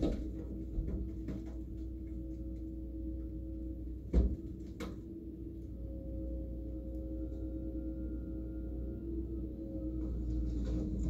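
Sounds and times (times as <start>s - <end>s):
excavator engine and hydraulics: 2.6s - 11.0s.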